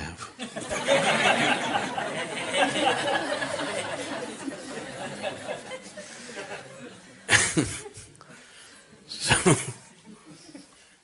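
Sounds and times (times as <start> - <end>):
audience laughing: 0.4 - 8.2
audience murmuring: 0.8 - 10.8.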